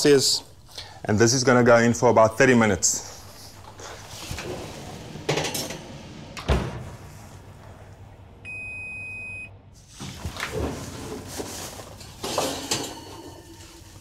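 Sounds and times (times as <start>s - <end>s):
oven timer beep: 8.4s - 9.6s.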